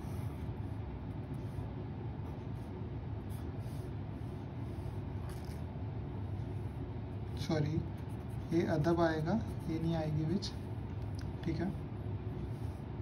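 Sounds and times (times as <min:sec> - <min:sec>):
marker pen scratching paper: 0:00.0 - 0:05.6, 0:06.6 - 0:11.0.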